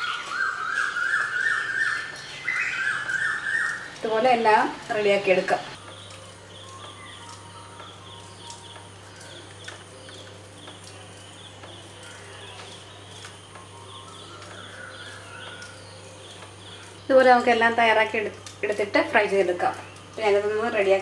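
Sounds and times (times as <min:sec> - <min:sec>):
bird chirping: 0:00.0 - 0:04.0, 0:05.8 - 0:17.8.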